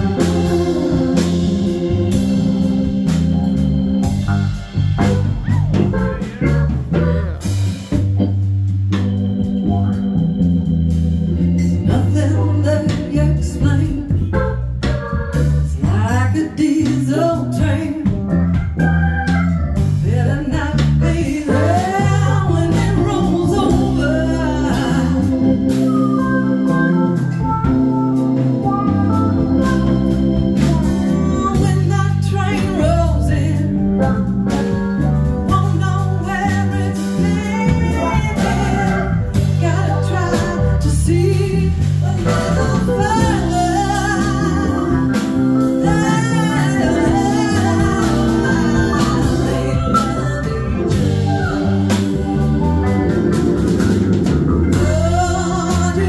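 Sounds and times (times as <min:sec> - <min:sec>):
live band playing: 0:00.0 - 0:56.0
woman singing lead: 0:11.6 - 0:14.6, 0:15.6 - 0:18.4, 0:19.8 - 0:34.8, 0:35.4 - 0:53.3, 0:54.7 - 0:56.0.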